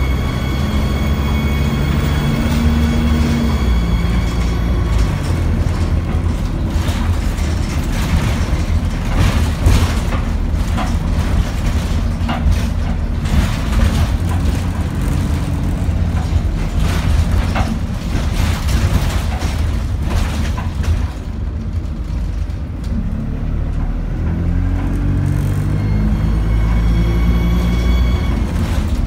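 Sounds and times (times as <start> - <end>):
bus diesel engine drone: 0.0 - 29.0
body knocks and rattles: 4.8 - 22.8.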